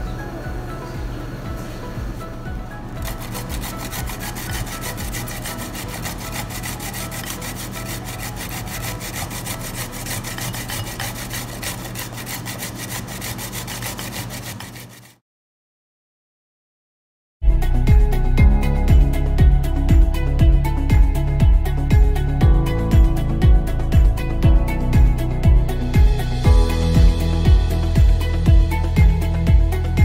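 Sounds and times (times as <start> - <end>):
potato grating on plastic grater: 3.0 - 15.2.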